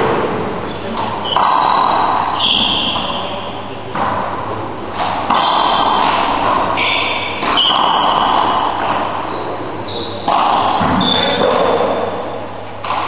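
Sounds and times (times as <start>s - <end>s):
shoes squeaking on wooden floor: 0.7s - 3.4s, 5.3s - 11.8s.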